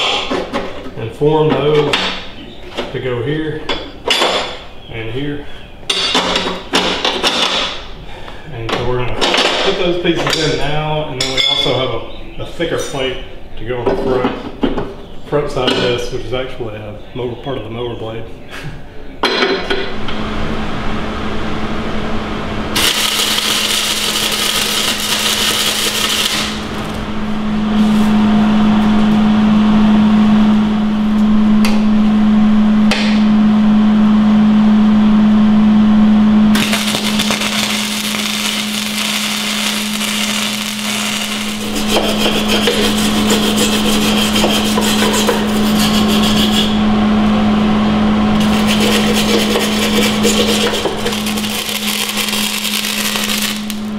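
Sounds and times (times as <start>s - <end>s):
steady buzz underneath: 15.0s - 53.9s
welder arc crackling and buzzing: 22.3s - 31.8s, 35.9s - 53.9s.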